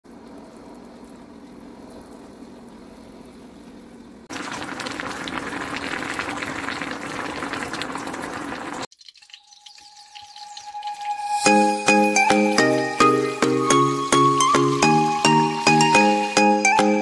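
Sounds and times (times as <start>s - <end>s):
stew crackling boil in a wok: 0.0s - 16.6s
sauce bubbling in a pan: 0.1s - 11.8s.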